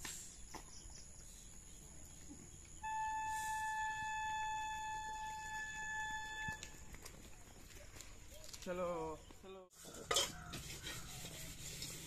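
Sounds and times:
held flute-like note: 2.8s - 6.8s.

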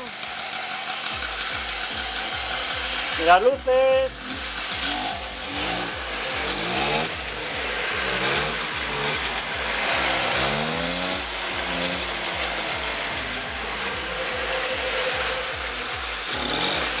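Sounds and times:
moped engine idling: 0.0s - 17.0s
man talking: 3.1s - 4.3s.

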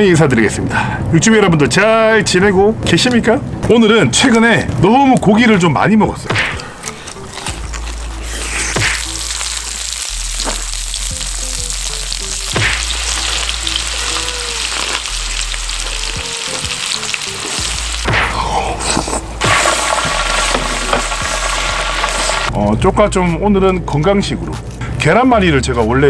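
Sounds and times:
background music: 2.2s - 26.0s
meat sizzling on a grill: 7.2s - 18.1s, 19.0s - 22.5s.

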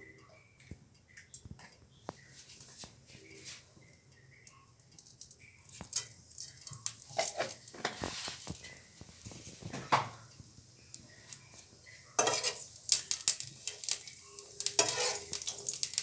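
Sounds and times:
spices sizzling in oil: 2.2s - 16.0s
hot oil ticking faintly: 3.8s - 16.0s.

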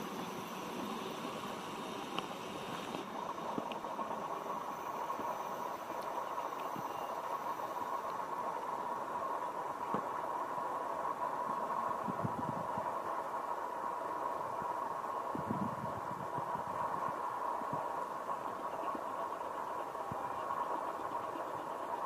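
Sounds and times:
tram rolling on rails: 0.0s - 22.0s
faint clicks: 0.2s - 7.4s.

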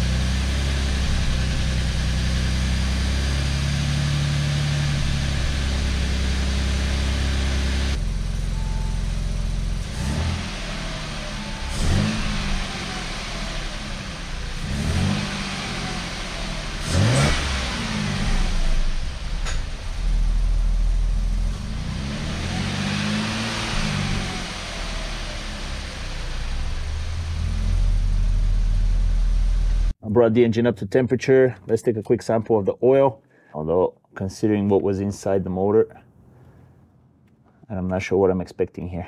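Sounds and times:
car engine idling and revving: 0.0s - 30.0s.

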